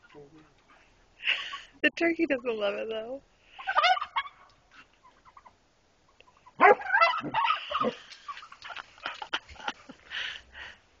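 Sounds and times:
turkey gobbling: 3.5 - 8.8
turkey clicks and puffs: 6.1 - 9.4.

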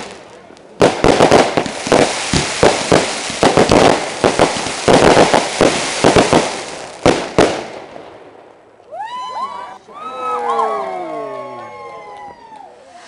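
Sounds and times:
fireworks crackling: 0.0 - 9.2, 11.7 - 13.0
firework shells bursting: 0.8 - 7.7.

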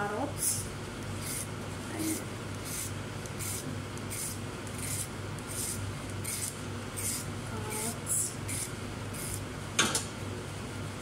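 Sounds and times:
vegetable peeler scraping carrot: 1.2 - 9.4.

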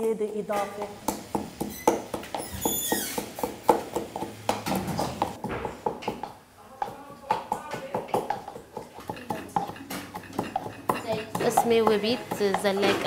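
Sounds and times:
wooden pestle pounding in mortar: 0.7 - 13.0
short falling squeak: 1.7 - 3.2.

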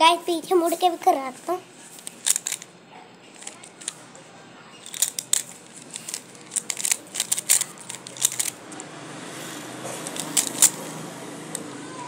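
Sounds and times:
puzzle cube layers clicking: 2.0 - 2.6, 4.8 - 8.6, 10.0 - 10.8.

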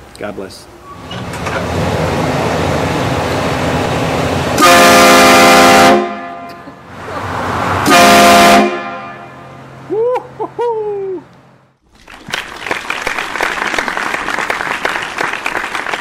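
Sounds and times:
air horn blasts: 4.6 - 6.7, 7.8 - 9.6.

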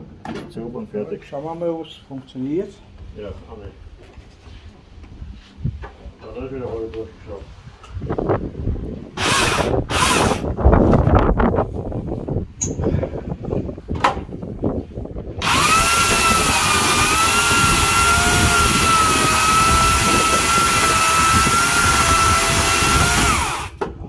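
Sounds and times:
electric chainsaw cutting log: 9.2 - 10.5, 15.4 - 23.9.

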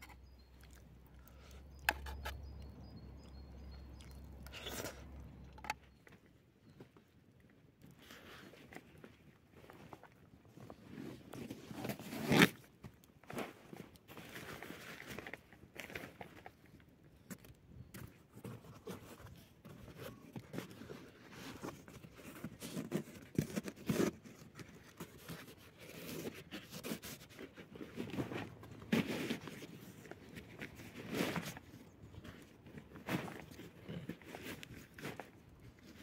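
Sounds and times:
crunching and scraping: 0.0 - 36.0.

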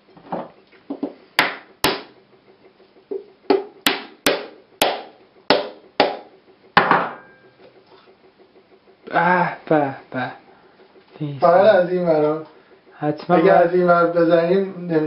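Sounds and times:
hammer knocking on coconut: 3.5 - 7.1.

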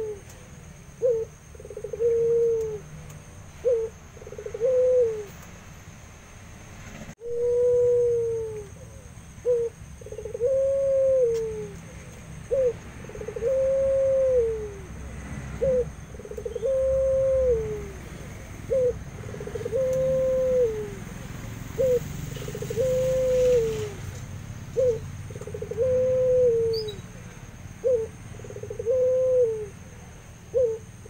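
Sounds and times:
dove cooing: 0.0 - 5.4, 7.2 - 24.1, 24.7 - 31.0.

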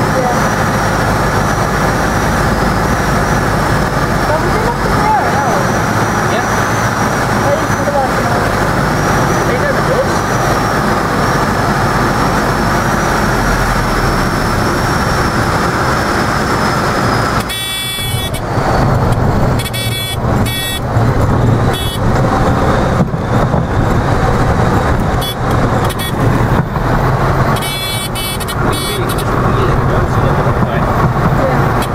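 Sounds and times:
light aircraft engine and airflow: 0.0 - 31.9
wheels rumbling on grass: 0.0 - 31.9
stall warning horn bursts: 17.3 - 21.0, 21.6 - 22.2, 25.1 - 26.5, 27.5 - 30.2.

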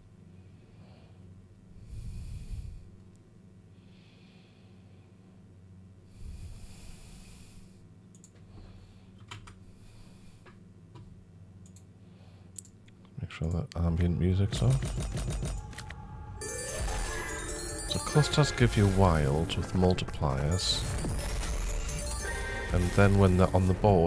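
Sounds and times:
man breathing close to microphone: 0.5 - 3.0, 3.7 - 5.3, 6.0 - 10.6.

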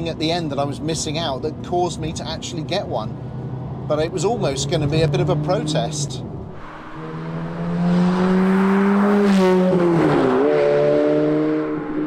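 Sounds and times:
car engine revving: 3.3 - 12.0.

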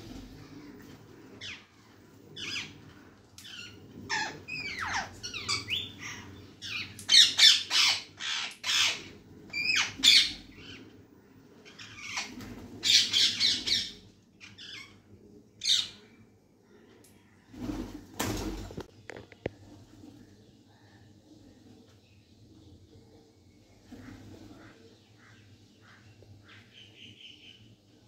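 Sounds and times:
parrots squawking: 3.4 - 10.8, 11.6 - 15.0.

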